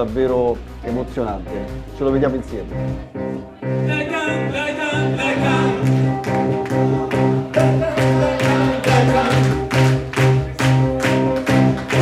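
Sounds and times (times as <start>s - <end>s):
electronic keyboards with beat: 0.0s - 12.0s
man singing into a microphone: 3.8s - 5.8s, 7.5s - 9.6s.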